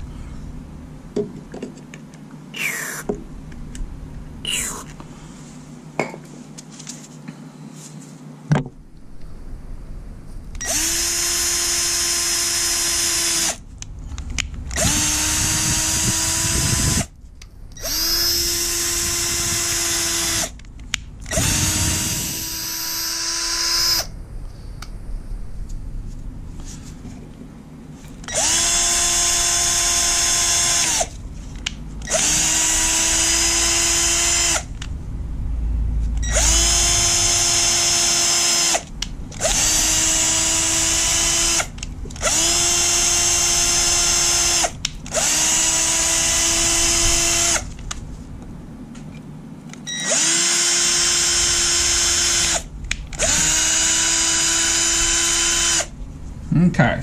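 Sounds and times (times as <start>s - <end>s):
cordless drill whining: 10.6s - 13.6s, 14.7s - 17.1s, 17.8s - 20.5s, 21.2s - 24.1s, 28.2s - 31.2s, 32.0s - 34.8s, 36.2s - 47.8s, 49.9s - 55.9s.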